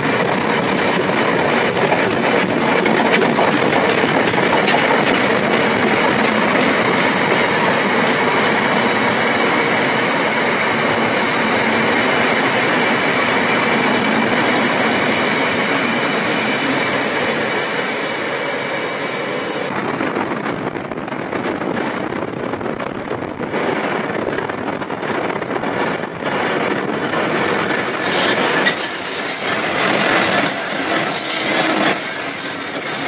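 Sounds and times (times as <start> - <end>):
freight train passing: 0.0 - 33.0
wheels clicking over rail joints: 0.2 - 7.6.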